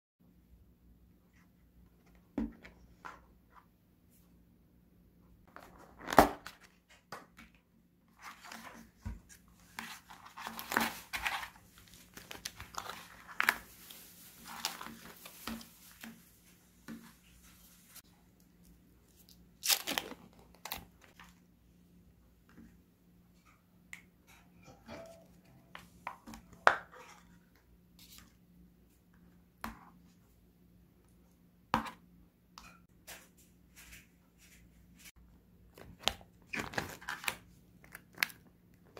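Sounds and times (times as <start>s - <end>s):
wrappers crinkling and tearing: 19.6s - 20.9s.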